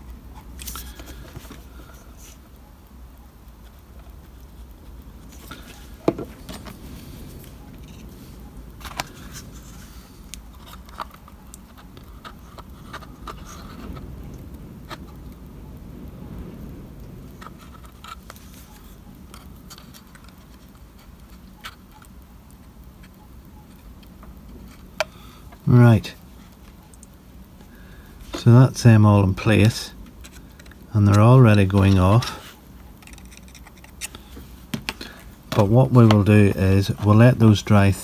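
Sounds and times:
faint low hum: 0.0s - 38.0s
small clicks taps and scrapes: 30.0s - 32.0s, 32.8s - 36.2s.

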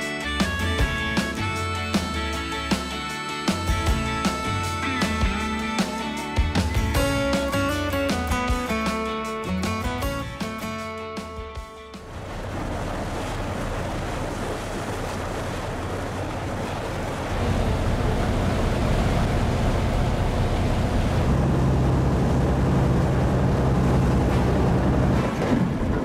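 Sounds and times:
boat engine humming: 0.0s - 26.0s
rushing water: 0.0s - 26.0s.

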